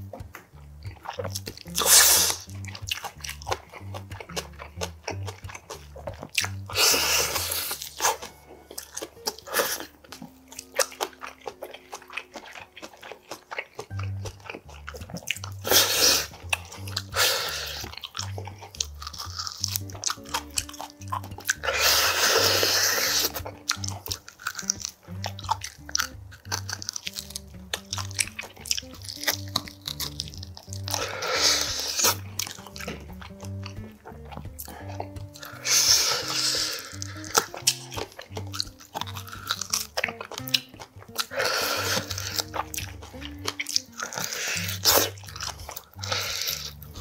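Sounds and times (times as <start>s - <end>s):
background music with bass beat: 0.0s - 9.8s, 13.9s - 47.0s
person chewing meat: 0.0s - 47.0s
wet mouth sounds: 0.0s - 47.0s.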